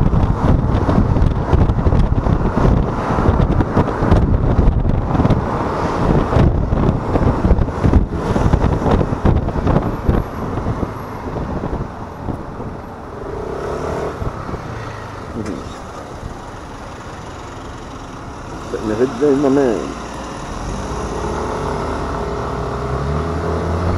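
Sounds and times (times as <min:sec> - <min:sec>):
wind buffeting microphone: 0:00.0 - 0:16.5
road noise: 0:00.0 - 0:23.9.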